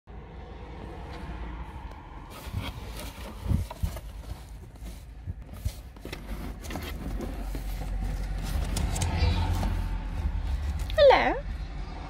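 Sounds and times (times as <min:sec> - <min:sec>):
low rumble: 0:00.1 - 0:12.0
knocks and scrapes on cardboard box: 0:02.3 - 0:10.9.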